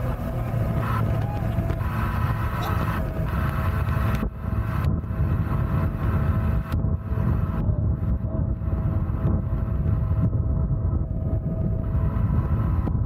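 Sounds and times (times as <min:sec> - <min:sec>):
wind and water rush: 0:00.0 - 0:10.4
boat engine running: 0:00.0 - 0:13.0.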